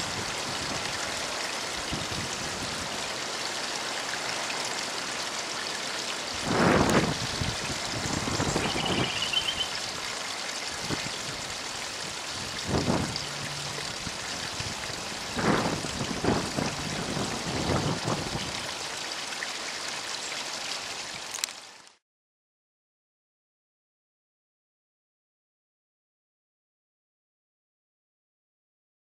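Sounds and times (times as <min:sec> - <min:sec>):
wind buffeting microphone: 0:06.4 - 0:09.4, 0:10.8 - 0:18.7
bird trill: 0:08.4 - 0:09.8.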